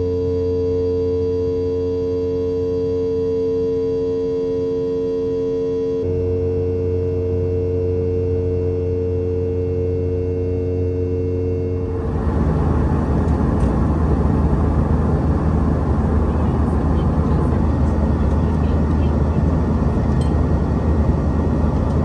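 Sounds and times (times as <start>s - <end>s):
hum of held tones: 0.0s - 22.0s
airplane cabin roar: 6.0s - 22.0s.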